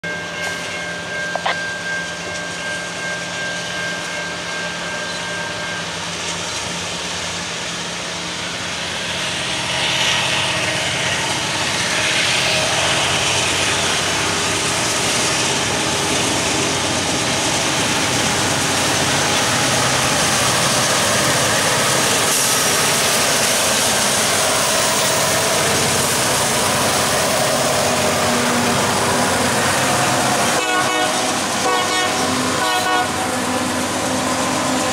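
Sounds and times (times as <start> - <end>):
diesel locomotive engines rumbling: 0.0 - 34.9.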